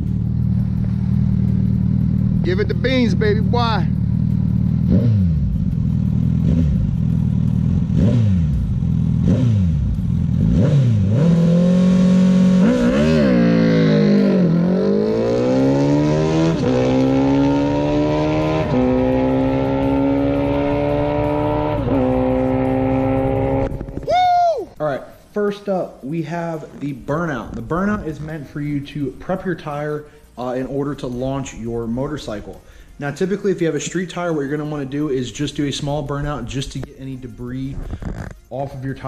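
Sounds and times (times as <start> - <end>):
motorcycle engine revving: 0.0 - 24.1.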